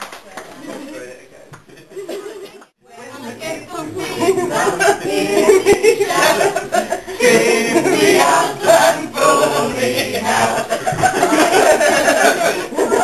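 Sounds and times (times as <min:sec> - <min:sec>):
group singing unaccompanied: 0:02.8 - 0:13.0.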